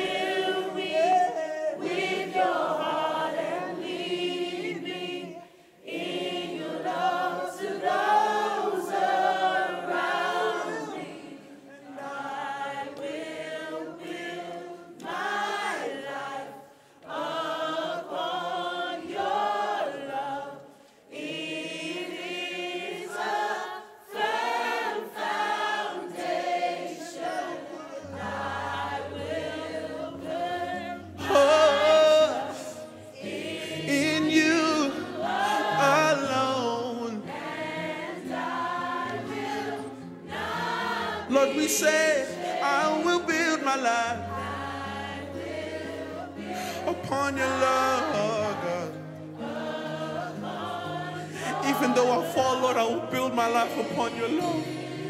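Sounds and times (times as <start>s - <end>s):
congregation singing: 0.0s - 55.0s.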